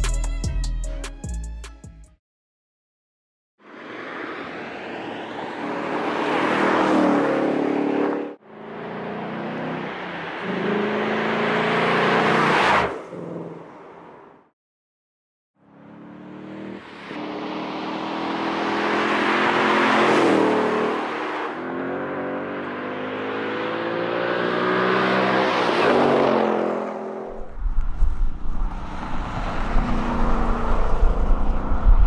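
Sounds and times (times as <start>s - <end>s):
car engine accelerating hard: 5.7s - 13.6s, 15.8s - 27.2s, 28.3s - 32.0s
wind buffeting microphone: 27.3s - 32.0s.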